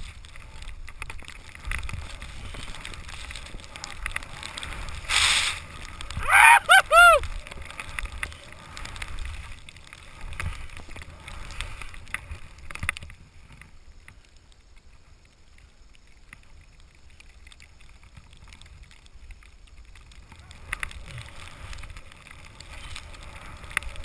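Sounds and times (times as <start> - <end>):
skis hissing through powder snow: 0.0 - 6.2
wind rumble on camera: 0.0 - 24.0.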